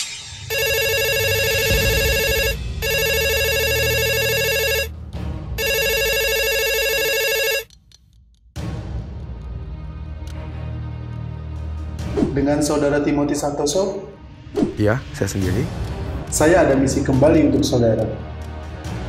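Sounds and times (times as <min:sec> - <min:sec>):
pulsing phone ringtone: 0:00.5 - 0:04.9, 0:05.6 - 0:07.7.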